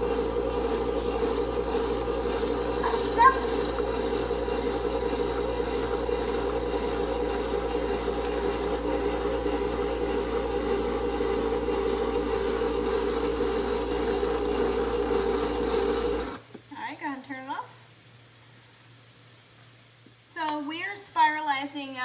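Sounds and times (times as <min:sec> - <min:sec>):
electric spiralizer motor grating: 0:00.0 - 0:16.4.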